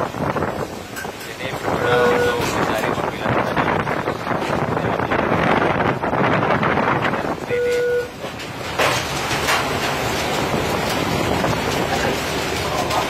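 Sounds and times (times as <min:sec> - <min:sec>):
wind rushing: 0:00.0 - 0:07.5, 0:08.3 - 0:12.9
ship under way: 0:00.0 - 0:13.0
short electronic beep: 0:07.5 - 0:08.1.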